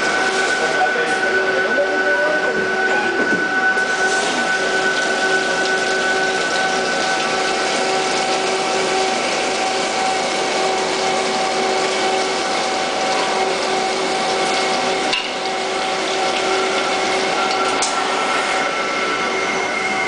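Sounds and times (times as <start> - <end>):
lathe machine whine: 0.0 - 20.0
coolant spray hissing: 3.8 - 18.7.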